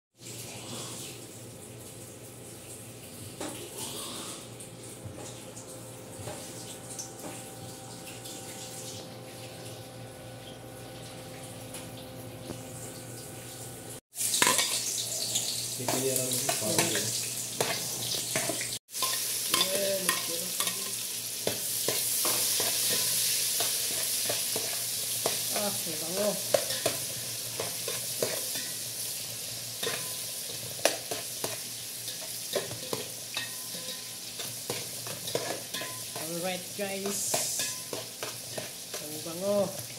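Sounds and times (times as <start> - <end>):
induction cooktop hum: 0.2 - 39.9
onion and garlic sizzling in oil: 12.2 - 39.9.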